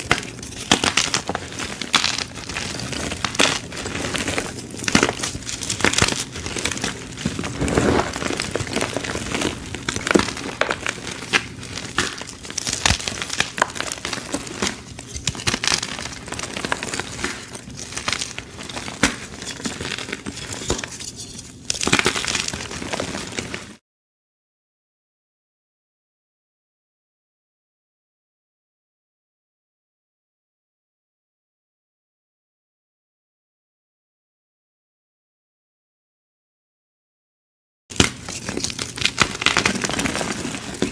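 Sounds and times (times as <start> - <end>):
chalk crunching and crumbling: 0.0 - 23.8, 37.9 - 40.9.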